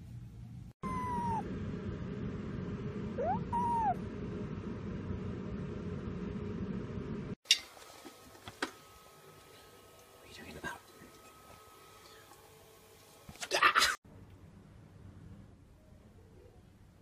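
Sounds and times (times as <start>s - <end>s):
kitten chirping meow: 0.8s - 1.4s, 3.2s - 4.0s.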